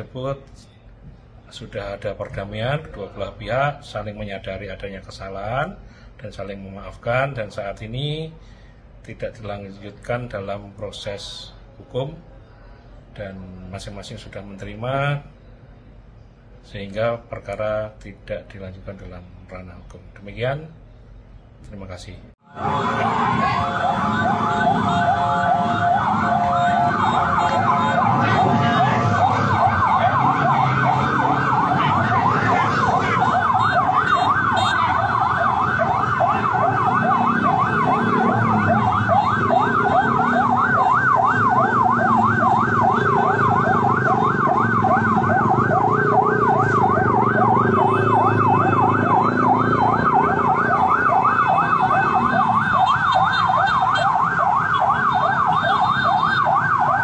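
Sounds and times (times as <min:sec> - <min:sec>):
police siren yelping: 0:22.5 - 0:57.0.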